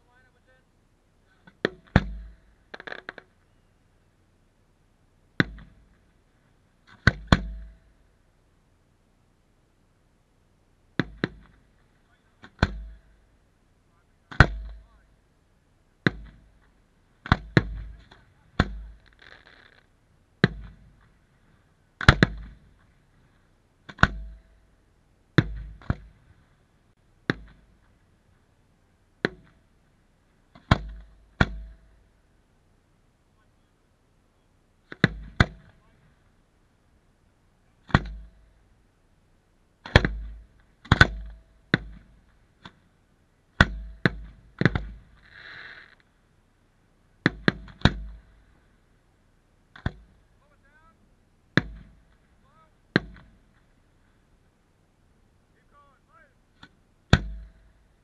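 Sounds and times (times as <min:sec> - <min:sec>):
firework shells banging: 0:01.5 - 0:03.4, 0:16.1 - 0:19.9.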